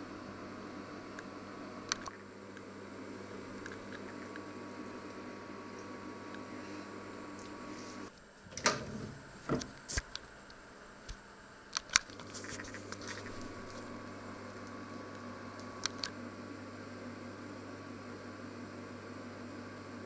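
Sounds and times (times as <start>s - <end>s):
electrical hum of appliances: 0.0s - 20.0s.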